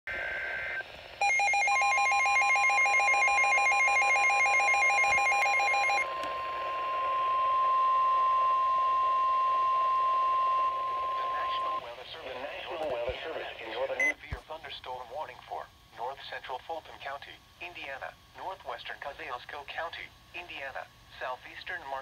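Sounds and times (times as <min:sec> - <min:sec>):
pulsing multi-tone radio alarm: 0:00.2 - 0:11.8.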